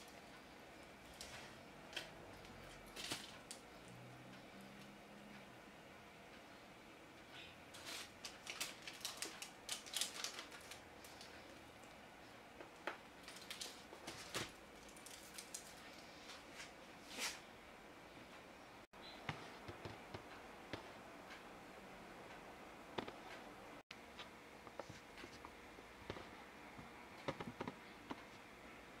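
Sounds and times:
bread crust crackling as torn: 7.8s - 11.4s, 13.2s - 16.0s.

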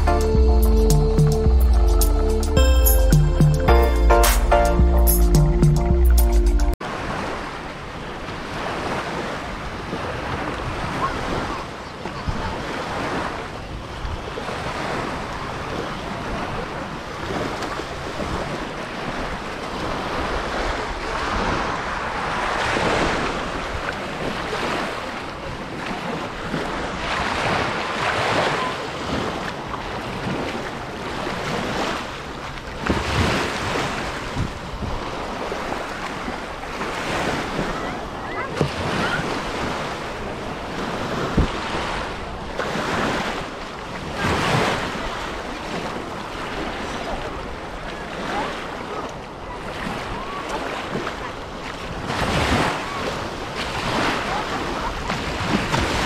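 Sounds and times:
sea surf washing on beach: 6.8s - 56.0s.

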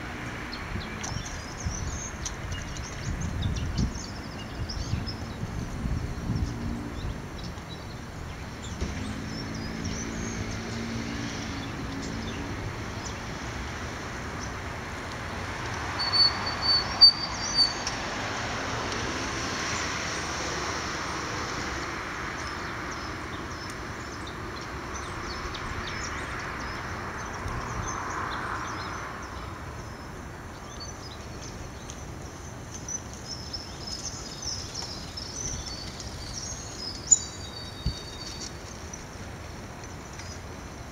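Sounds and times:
small birds chirping: 0.4s - 13.5s, 15.8s - 18.1s, 22.4s - 40.7s.

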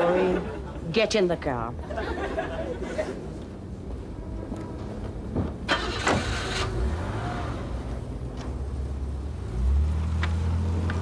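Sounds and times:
car engine humming: 1.5s - 11.0s.

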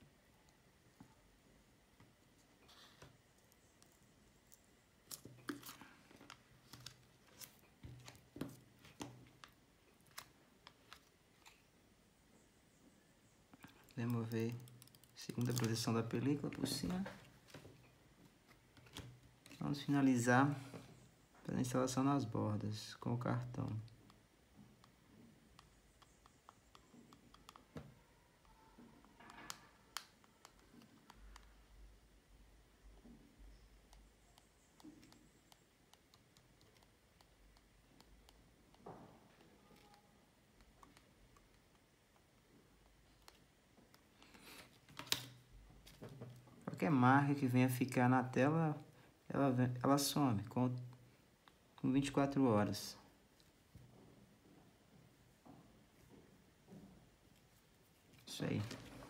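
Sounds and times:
plastic liner crinkling: 13.7s - 17.6s
plastic card clicking: 44.9s - 45.4s.

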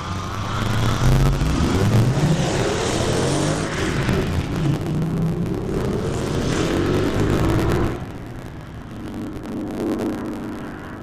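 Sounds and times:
race car engine revving: 0.0s - 8.1s.

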